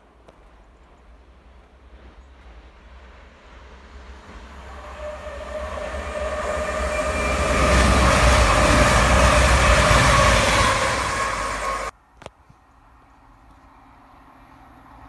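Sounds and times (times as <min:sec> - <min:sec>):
train passing at speed: 0:00.0 - 0:11.9
steady whining tones: 0:03.1 - 0:11.9.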